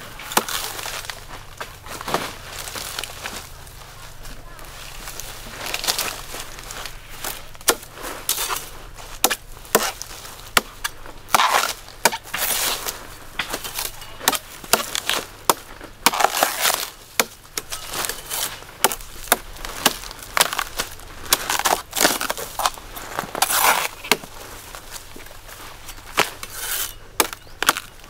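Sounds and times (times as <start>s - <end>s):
heavy knife chopping coconut husk: 0.3s - 0.8s, 7.3s - 22.8s, 23.4s - 24.4s, 26.2s - 28.0s
knife rasping cuts: 26.4s - 27.0s.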